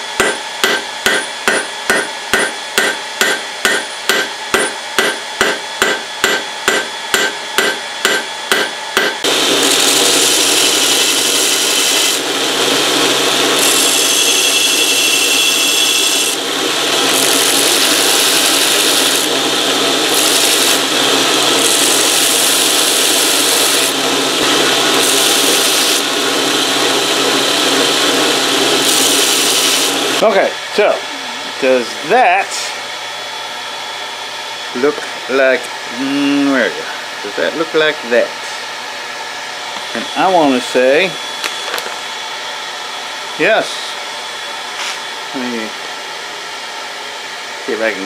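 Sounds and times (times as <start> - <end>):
hammer striking steel on anvil: 0.0 - 9.3
belt grinder grinding steel: 9.2 - 30.2.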